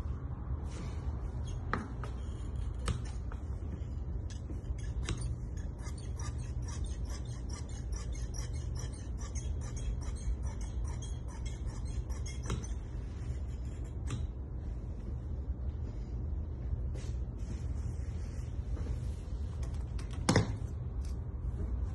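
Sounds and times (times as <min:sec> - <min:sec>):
low steady hum: 0:00.0 - 0:21.9
shears snipping through cloth: 0:02.6 - 0:03.4.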